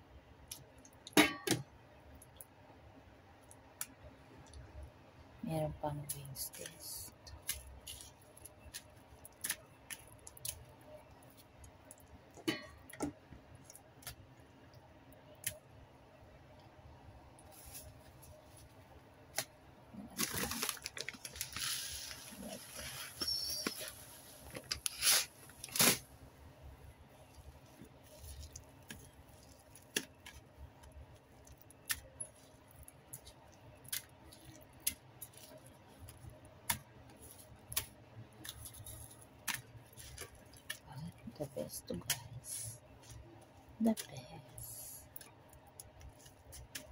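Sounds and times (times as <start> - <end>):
breadcrumbs rustling: 6.5 - 12.1, 17.4 - 26.1, 27.1 - 46.9.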